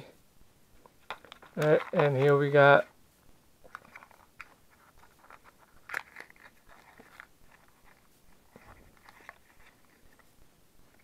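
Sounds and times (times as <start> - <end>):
cardboard box and wrapper rustling: 3.7 - 10.3
paper wrapper crinkle: 3.7 - 10.3.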